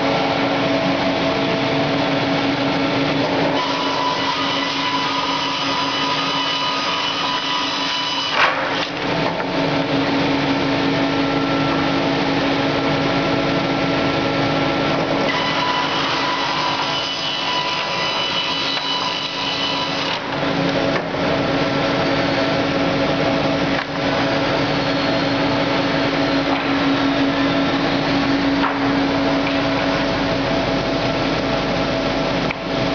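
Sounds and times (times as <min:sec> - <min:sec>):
board edger humming and whining: 0:00.0 - 0:32.9
boards being sawn: 0:03.3 - 0:09.4, 0:15.2 - 0:20.4.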